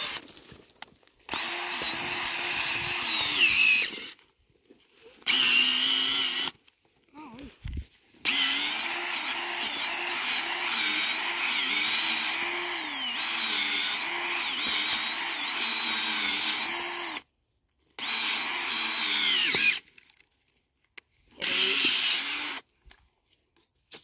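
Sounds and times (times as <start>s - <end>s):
cordless drill boring into soil: 0.0s - 0.6s, 1.2s - 4.3s, 5.2s - 6.7s, 8.2s - 17.3s, 18.0s - 19.9s, 21.3s - 22.7s.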